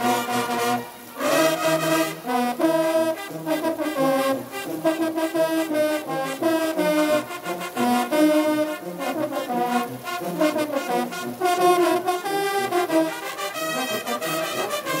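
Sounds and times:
brass fanfare: 0.0 - 15.0
trumpet melody: 0.0 - 15.0
tubas playing bass: 0.0 - 15.0.

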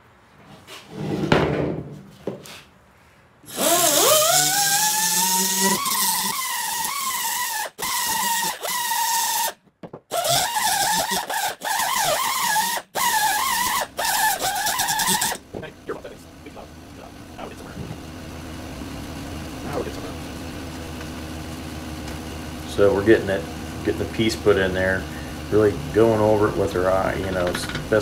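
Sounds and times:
air die grinder whining: 3.5 - 28.0.

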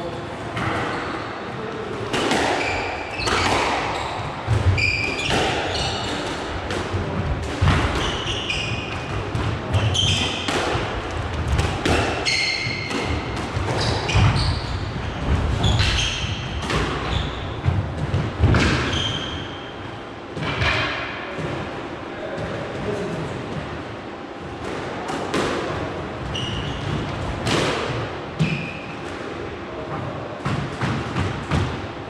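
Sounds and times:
squash ball hits: 2.0 - 19.7, 24.6 - 25.9, 26.5 - 29.3, 30.4 - 31.9
shoes squeaking on court floor: 2.6 - 6.2, 9.7 - 10.5, 12.2 - 17.6, 26.2 - 27.1.

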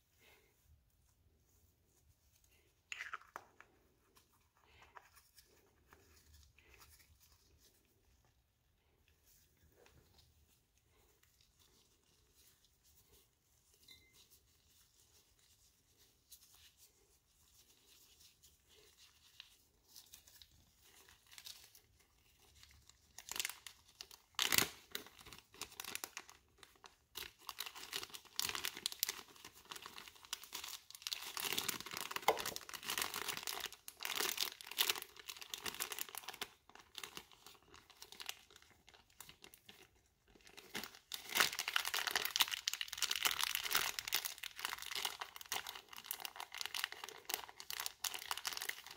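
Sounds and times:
plastic bag crinkling: 18.7 - 48.9.

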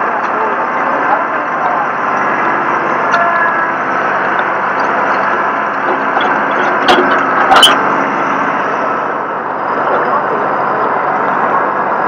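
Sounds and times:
heavy vehicle engine running: 0.0 - 12.0.

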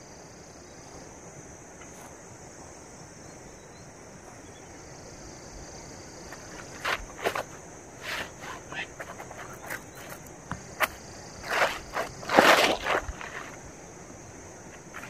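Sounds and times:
insects chirring: 0.0 - 15.0
nylon bag rustling: 6.4 - 13.6.

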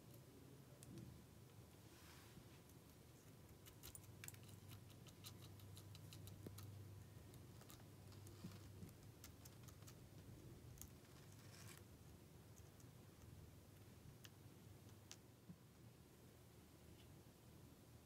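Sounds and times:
low steady hum: 0.0 - 18.0.

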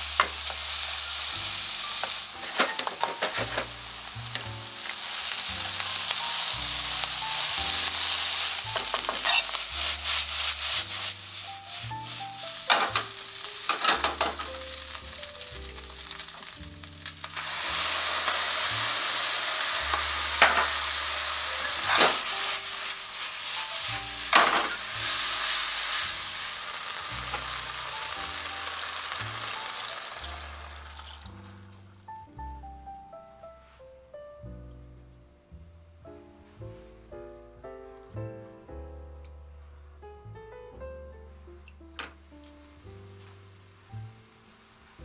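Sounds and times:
food sizzling in a frying pan: 0.0 - 32.9, 42.3 - 45.0
soft background music: 0.0 - 45.0
spatula scraping and knocking pan: 2.0 - 3.8, 7.4 - 11.3, 12.0 - 14.6, 19.9 - 20.9, 21.6 - 26.1.

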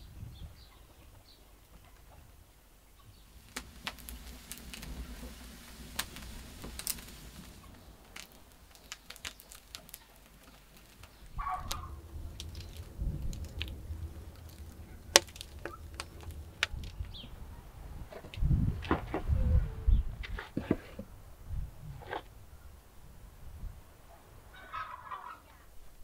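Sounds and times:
twigs burning and crackling: 3.0 - 19.2
low rumble: 3.2 - 20.2.

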